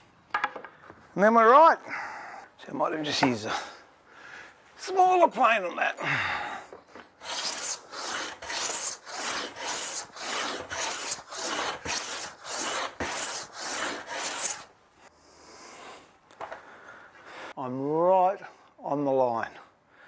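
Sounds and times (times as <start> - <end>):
hand plane strokes on wood: 7.2 - 14.7.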